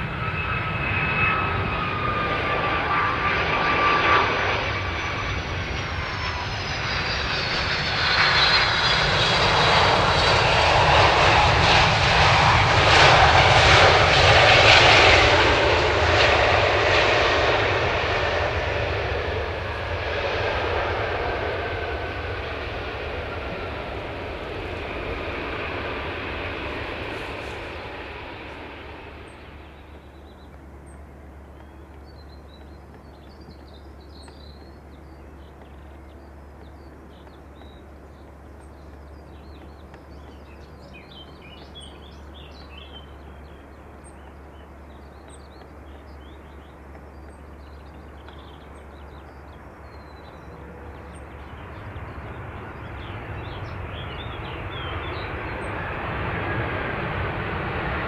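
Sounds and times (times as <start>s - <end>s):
jet engines roaring: 0.0s - 58.0s
small birds chirping: 23.4s - 56.5s.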